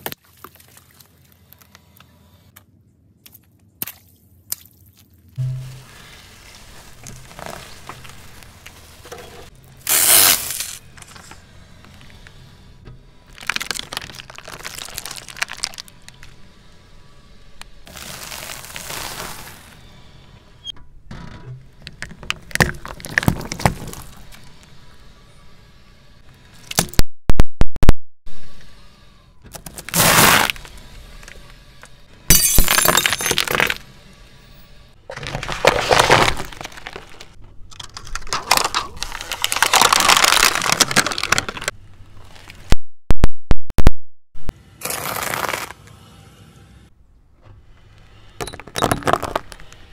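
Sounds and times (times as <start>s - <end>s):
tyre crushing plastic containers: 13.3s - 15.9s, 35.1s - 41.8s, 48.4s - 49.9s.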